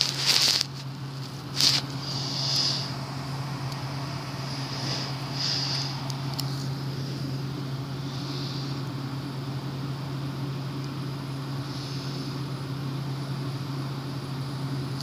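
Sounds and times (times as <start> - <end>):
background hiss: 0.0 - 6.9
fidget spinner whirring: 0.0 - 13.8.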